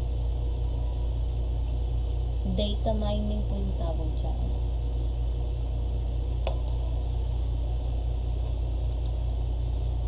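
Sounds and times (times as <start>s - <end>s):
low electrical hum: 0.0s - 10.0s
computer mouse clicking: 8.4s - 9.2s.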